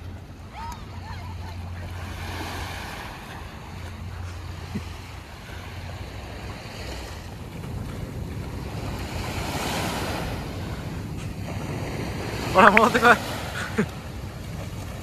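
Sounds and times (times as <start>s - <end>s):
sea waves washing onto beach: 0.0s - 15.0s
wind buffeting microphone: 0.0s - 15.0s.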